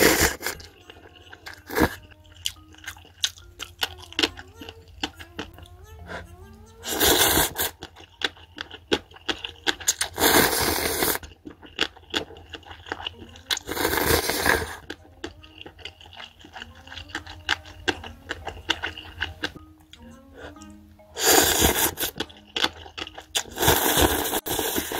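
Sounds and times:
person slurping noodles: 0.0 - 0.7, 1.4 - 2.0, 6.8 - 7.8, 9.9 - 11.4, 13.6 - 14.8, 21.2 - 22.2, 23.4 - 24.9
wet chewing clicks: 0.0 - 5.7, 7.0 - 20.0, 20.6 - 24.9.

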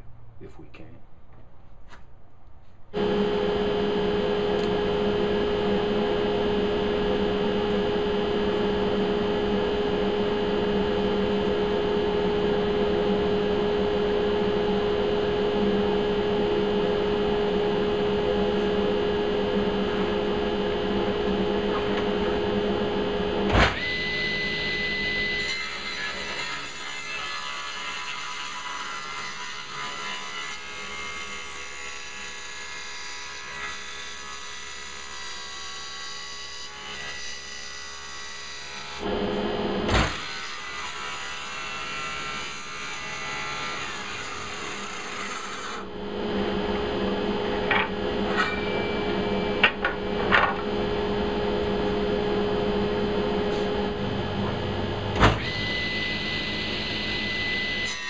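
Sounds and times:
woodshop machine humming: 3.0 - 58.0.

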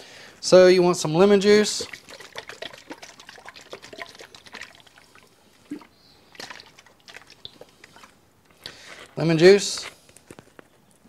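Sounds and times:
liquid dribbling drops: 1.6 - 8.1.

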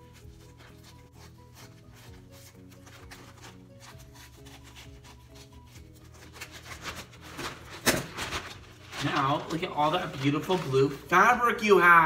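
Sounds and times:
soft background music: 0.0 - 12.0
plastic bag rustling and crinkling: 2.5 - 11.2.

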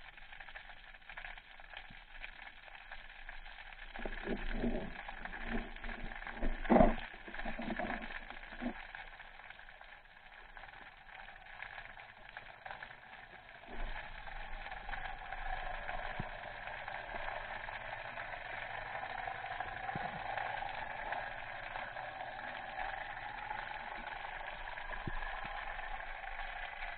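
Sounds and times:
underwater hiss: 11.4 - 26.9.

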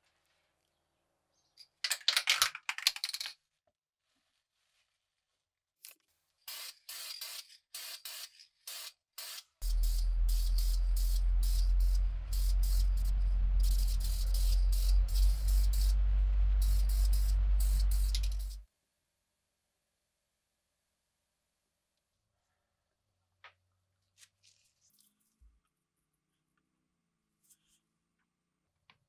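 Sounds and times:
short hissing spray bursts: 6.5 - 18.6
steady low hum: 9.6 - 18.6.

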